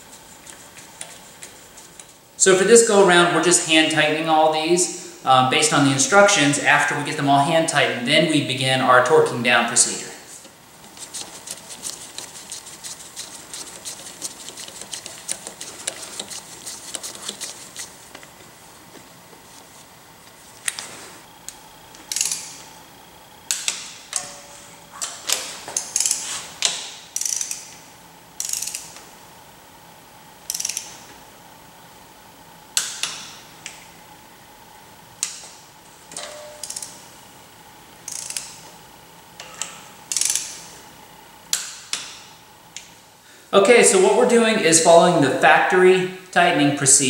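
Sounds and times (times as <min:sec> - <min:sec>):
ratchet wrench clicking: 0:22.1 - 0:22.6, 0:25.8 - 0:27.8, 0:28.4 - 0:29.0, 0:30.4 - 0:31.0, 0:36.6 - 0:37.0, 0:38.0 - 0:38.6, 0:39.4 - 0:40.6.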